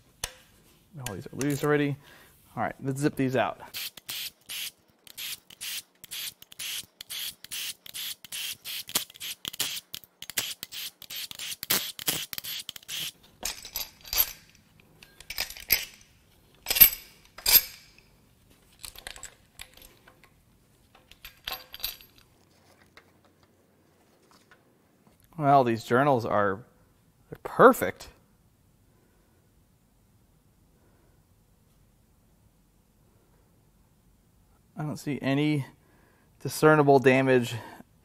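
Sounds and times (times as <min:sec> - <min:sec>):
metallic clinks of bolts: 0:13.4 - 0:18.1, 0:18.7 - 0:22.3.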